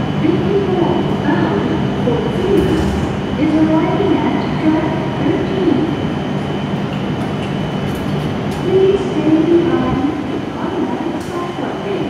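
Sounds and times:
train hum: 0.0s - 12.0s
high-pitched whine: 1.5s - 6.0s.

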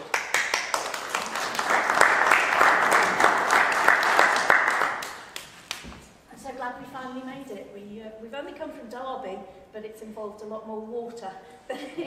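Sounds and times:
audience applauding: 0.0s - 5.9s.

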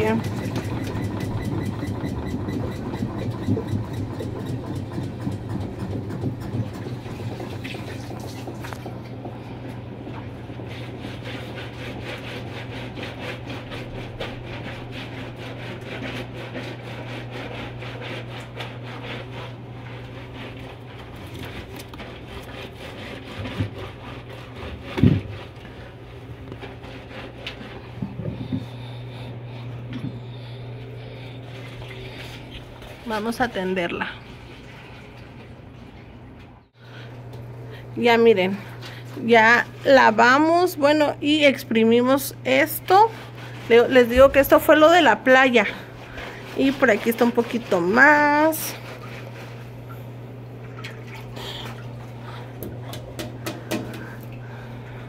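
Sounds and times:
washing machine spinning: 0.0s - 55.0s.

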